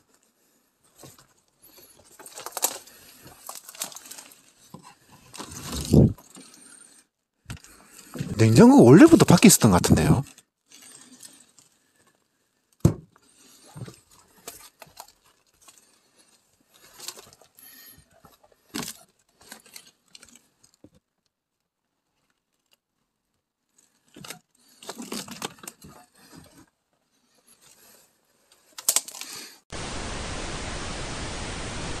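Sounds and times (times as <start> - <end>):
knocks and clicks of handling objects: 12.8 - 13.2
static hiss: 29.7 - 32.0.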